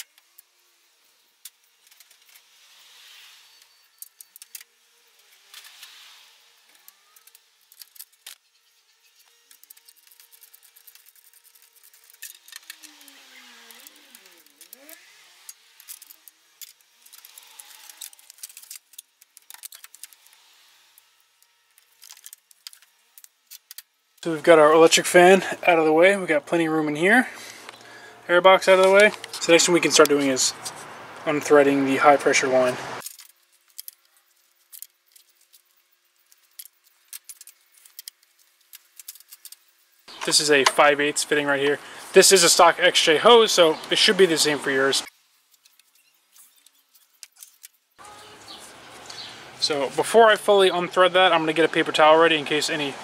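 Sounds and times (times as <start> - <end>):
clicks and rattles of parts: 1.4 - 2.4, 3.6 - 6.0, 6.7 - 8.4, 9.2 - 13.1, 13.7 - 20.4, 21.8 - 23.9, 33.0 - 40.8, 45.5 - 47.8.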